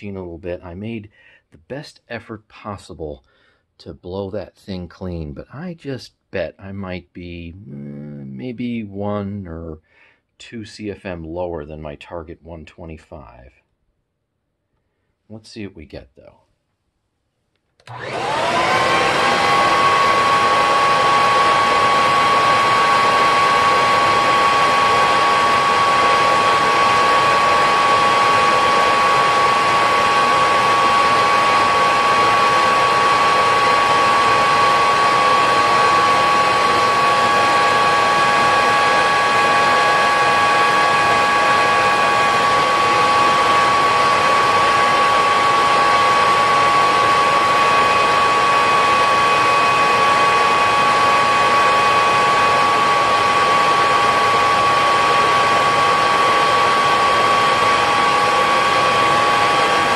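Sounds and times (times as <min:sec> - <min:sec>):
vacuum cleaner motor whining: 0:17.8 - 0:59.9.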